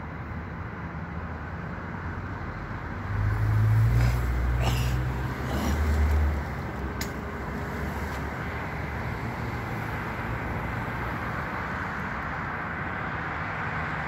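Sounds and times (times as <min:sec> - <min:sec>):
vehicle rumbling past: 0:02.2 - 0:12.1.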